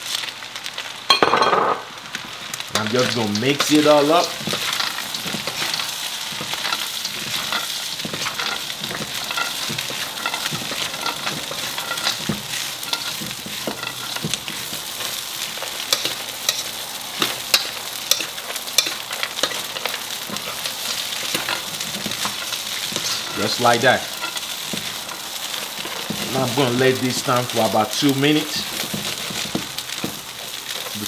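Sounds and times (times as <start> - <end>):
food sizzling in hot oil: 0.0 - 31.0
spatula scraping and clicking on pan: 2.8 - 26.4, 28.6 - 31.0.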